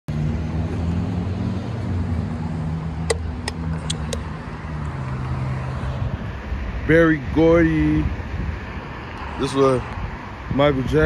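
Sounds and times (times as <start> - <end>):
vehicle engine humming: 0.1 - 11.0
sharp clicks: 3.0 - 4.3.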